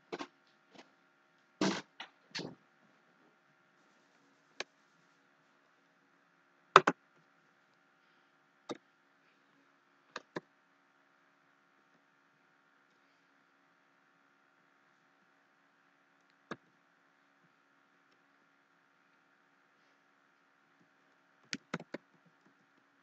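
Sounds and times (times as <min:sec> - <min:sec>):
computer mouse clicking: 0:21.4 - 0:22.6.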